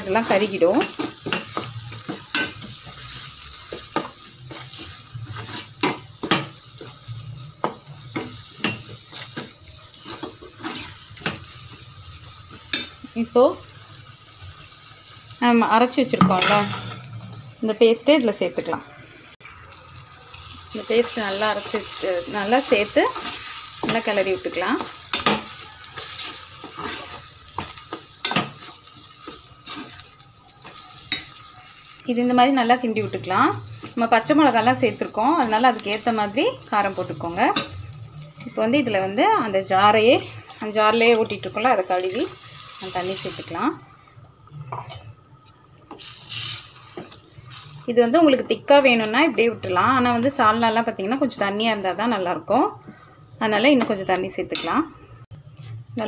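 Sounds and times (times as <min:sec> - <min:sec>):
masala sizzling: 0:00.0 - 0:56.0
spoon scraping a metal pot: 0:07.6 - 0:11.4.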